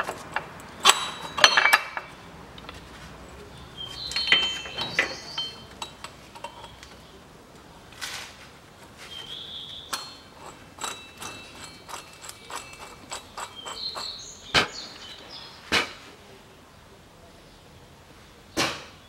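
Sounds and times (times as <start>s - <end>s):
metal tool parts clinking: 0.0s - 2.8s, 3.9s - 7.0s, 9.9s - 14.2s.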